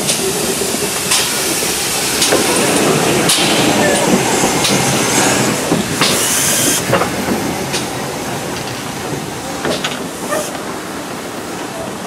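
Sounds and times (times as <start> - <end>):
hiss of steam: 0.0 - 12.0
steam locomotive rolling past: 0.0 - 12.0.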